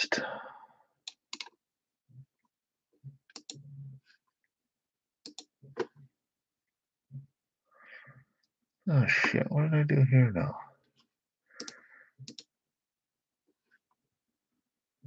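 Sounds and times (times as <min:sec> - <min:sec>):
mouse and keyboard clicks: 0:01.1 - 0:01.6, 0:03.3 - 0:03.6, 0:05.2 - 0:06.0, 0:11.6 - 0:12.5.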